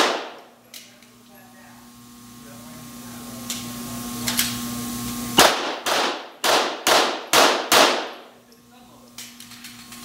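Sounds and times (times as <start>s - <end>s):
pistol shots echoing: 0.0s - 0.4s, 5.4s - 8.3s.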